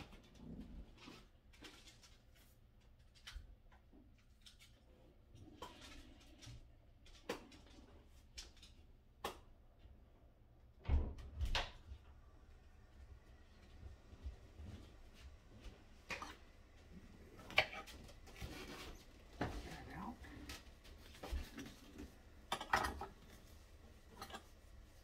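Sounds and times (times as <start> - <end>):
kitchen handling clicks and knocks: 22.5 - 23.2.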